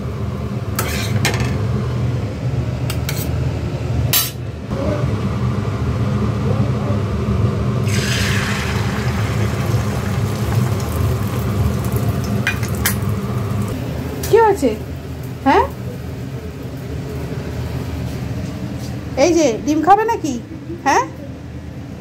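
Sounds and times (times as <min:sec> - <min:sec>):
oil sizzling in frying pan: 0:07.8 - 0:17.0.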